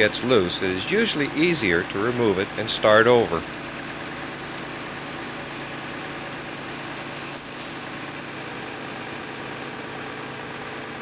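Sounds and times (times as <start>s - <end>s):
diesel engine running at low revs: 0.0s - 11.0s.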